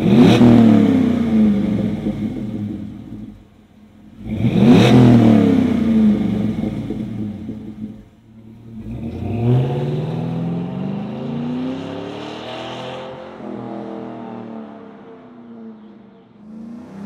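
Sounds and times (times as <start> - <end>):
pickup truck engine accelerating: 0.0 - 14.8, 16.4 - 17.0.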